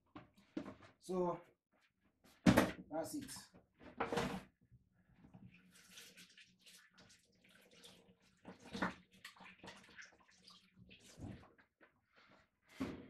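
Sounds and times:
water splashing and trickling: 5.2s - 11.7s.

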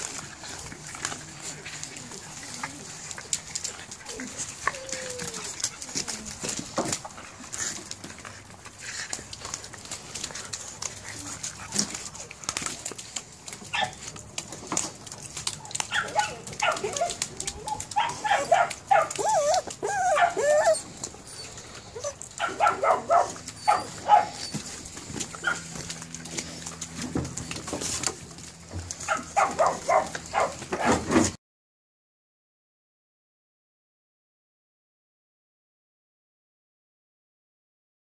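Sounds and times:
puppies yipping and whining: 0.0s - 14.1s, 15.1s - 31.1s.

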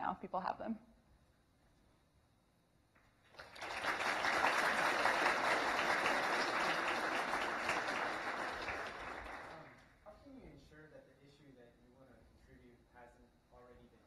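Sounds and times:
audience applauding: 3.3s - 9.8s.

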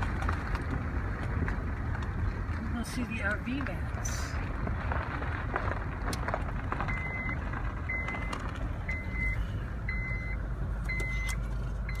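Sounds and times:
engine and road rumble: 0.0s - 12.0s
vehicle warning beeper: 6.8s - 12.0s.

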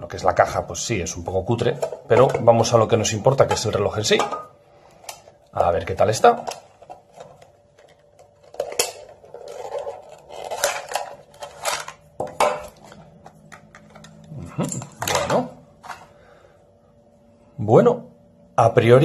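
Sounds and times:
plastic wrapping rustling: 5.3s - 14.4s.

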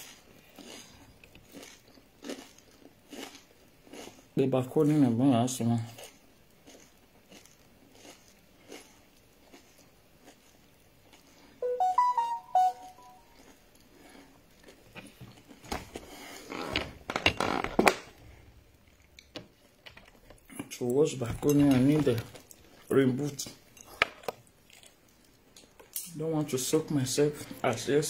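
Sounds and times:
short electronic jingle: 11.6s - 13.3s.

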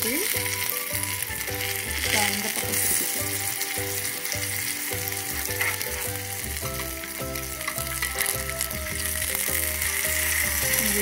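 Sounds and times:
fish sizzling in hot oil: 0.0s - 11.0s
metal spatulas scraping a pan: 5.3s - 6.2s.

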